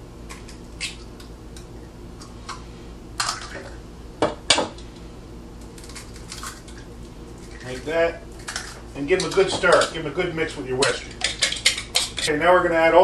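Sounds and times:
eggs cracking against a bowl: 0.2 - 2.6, 3.2 - 3.8, 5.5 - 12.3.

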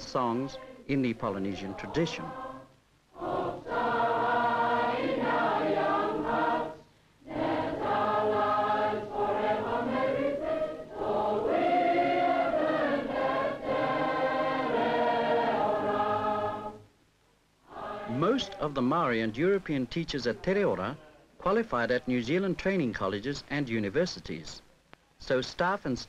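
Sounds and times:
choir singing: 0.0 - 16.8, 17.6 - 18.9.

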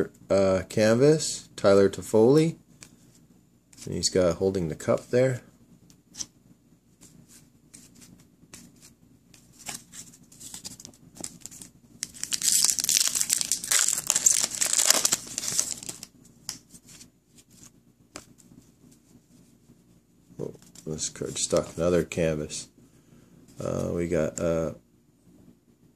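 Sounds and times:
card pack wrapper tearing: 10.5 - 16.1.

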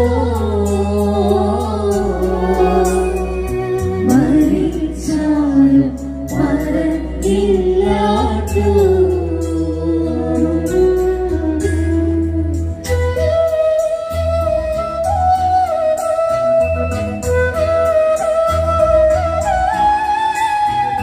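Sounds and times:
women singing a hymn: 4.0 - 11.1.

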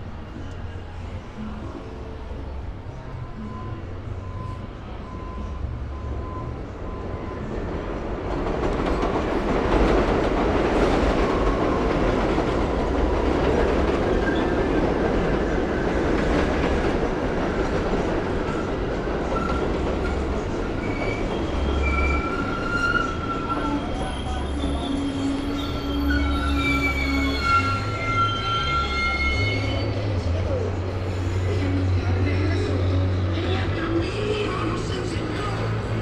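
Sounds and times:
train wheels rumbling on rail: 5.1 - 36.0
high wheel squeals: 19.3 - 31.8.

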